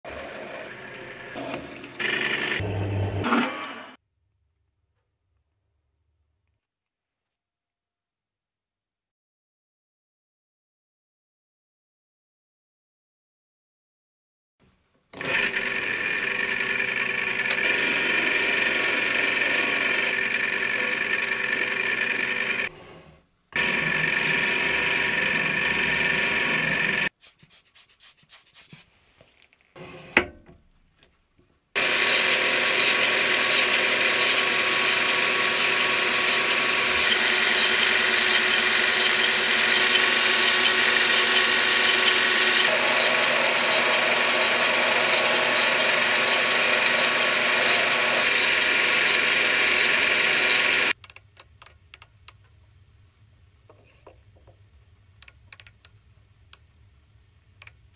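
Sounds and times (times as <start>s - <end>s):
lathe running: 0.1s - 2.8s, 15.2s - 27.1s, 31.8s - 51.0s
small clicks: 50.9s - 52.6s, 55.2s - 56.7s, 57.6s - 57.9s.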